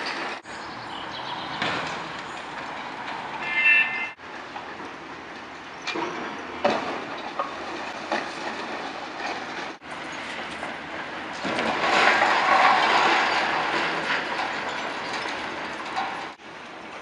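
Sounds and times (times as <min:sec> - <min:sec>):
grinding and clattering concrete rubble: 0:00.0 - 0:17.0.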